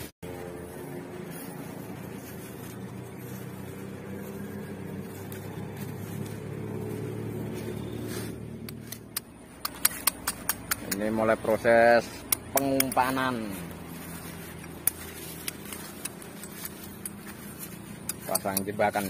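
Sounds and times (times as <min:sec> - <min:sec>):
engine drone: 0:00.0 - 0:19.0.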